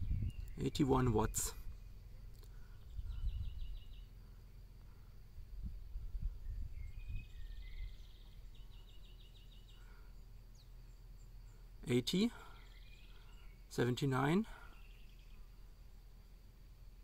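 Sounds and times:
uneven low rumble: 0.0s - 9.0s.

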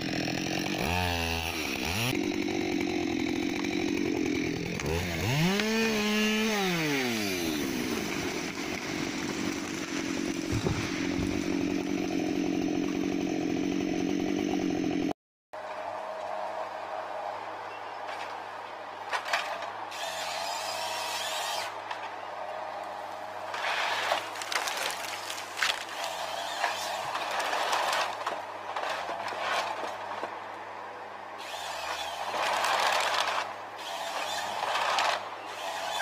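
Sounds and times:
branches crackling and breaking: 0.0s - 15.0s, 23.1s - 30.5s, 32.0s - 35.4s
saw cutting tree: 0.0s - 15.2s, 19.2s - 22.1s, 23.1s - 30.4s, 31.4s - 36.0s
harvester engine running: 7.6s - 15.1s
sharp cracks: 23.5s - 30.3s.

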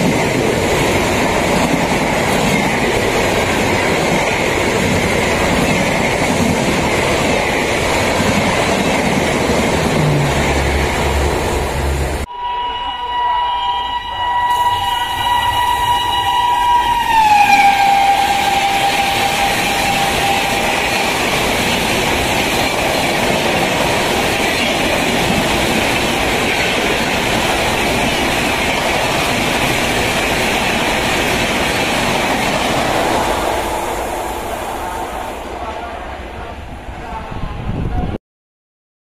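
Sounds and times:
locomotive horn: 10.2s - 21.4s.

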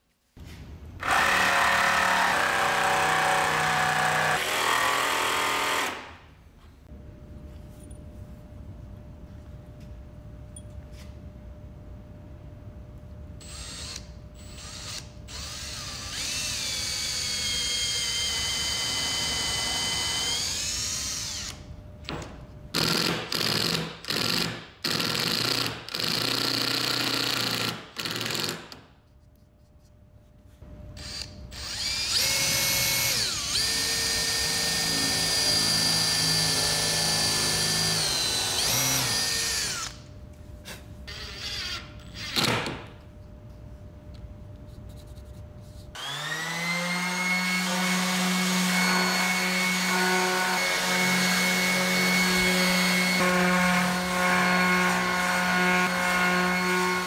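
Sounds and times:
cordless drill boring into wood: 13.4s - 21.6s, 31.0s - 40.0s, 41.1s - 42.5s, 46.0s - 47.7s.

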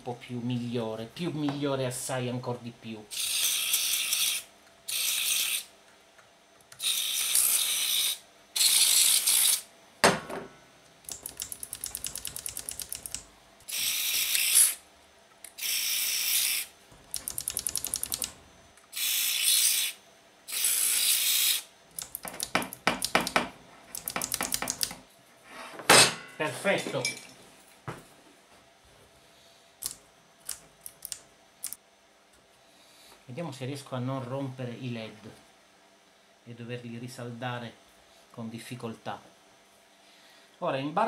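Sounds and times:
sliders rattling and clicking: 11.1s - 13.3s, 17.0s - 18.4s, 22.0s - 25.0s.

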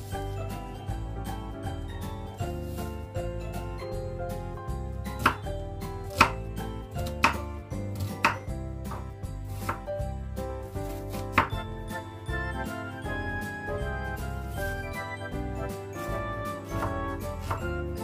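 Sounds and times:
background music: 0.0s - 18.0s
knife chopping on wooden board: 5.1s - 5.5s, 6.1s - 9.9s, 10.9s - 11.6s, 16.7s - 17.7s.

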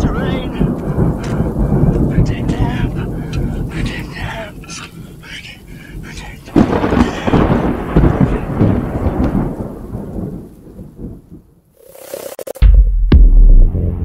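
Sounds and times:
microphone handling rumble: 0.0s - 4.6s.

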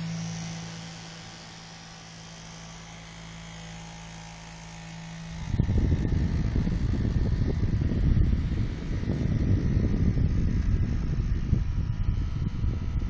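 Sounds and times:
desk fan motor hum: 0.0s - 13.0s
wind buffeting microphone: 5.4s - 13.0s.

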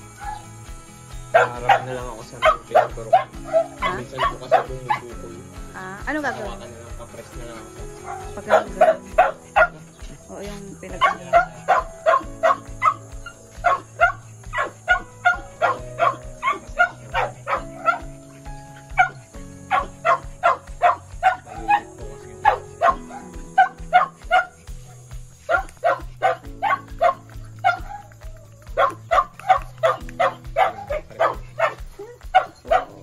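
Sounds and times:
background music with low notes: 0.0s - 33.0s
small dog yapping: 8.0s - 9.8s, 11.0s - 18.2s, 18.8s - 24.6s, 25.4s - 33.0s.

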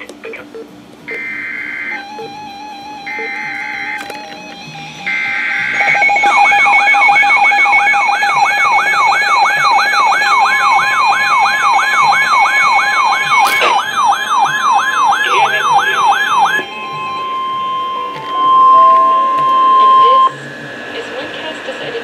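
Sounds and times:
siren-like sweeping alarm: 1.1s - 22.0s
steady alert tone: 12.2s - 20.8s
steady high beep: 15.0s - 20.5s.

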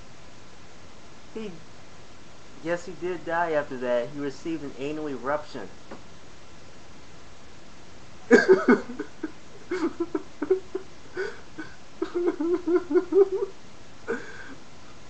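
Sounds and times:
man laughing: 8.3s - 14.6s.

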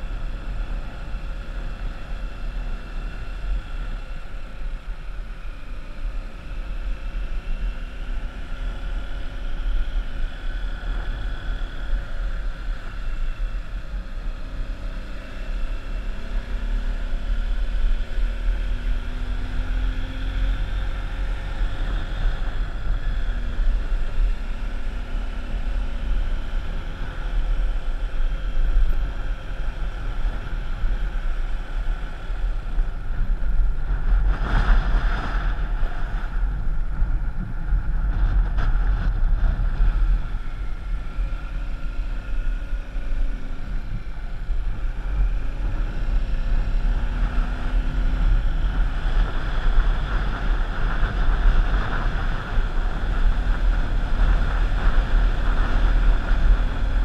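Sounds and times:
rush of noise: 0.0s - 57.0s
vehicle engine running: 0.0s - 57.0s
wind buffeting microphone: 28.9s - 57.0s.

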